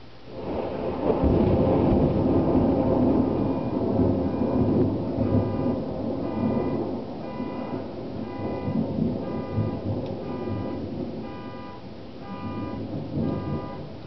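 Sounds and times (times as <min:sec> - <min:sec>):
thunder rumbling: 0:00.0 - 0:14.0.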